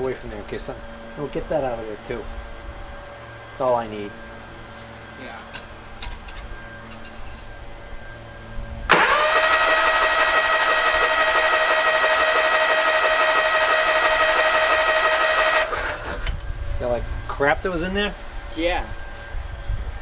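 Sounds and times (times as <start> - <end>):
electric starter cranking engine: 8.9 - 16.5.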